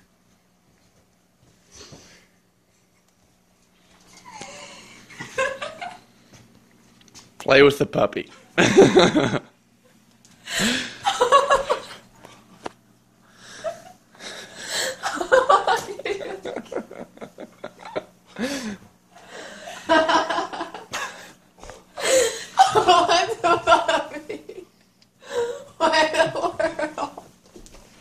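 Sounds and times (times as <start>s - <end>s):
people laughing excitedly: 4.5s - 6.0s, 8.6s - 9.5s, 10.6s - 12.0s, 14.9s - 18.6s, 19.6s - 21.3s, 22.0s - 24.7s, 25.4s - 27.2s.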